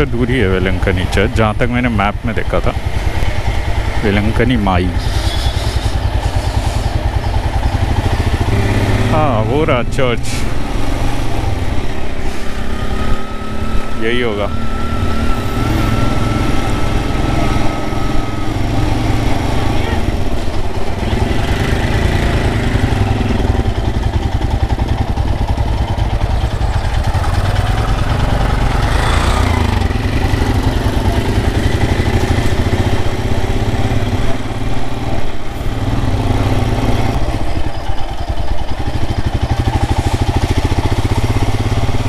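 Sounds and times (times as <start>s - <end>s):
motorcycle engine running: 0.0s - 12.2s, 14.9s - 42.0s
high-pitched noise: 12.7s - 20.2s.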